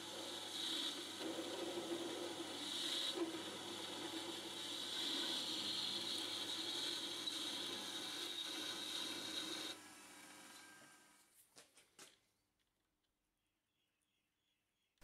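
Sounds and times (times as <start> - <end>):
metal lathe cutting steel: 0.0 - 10.8.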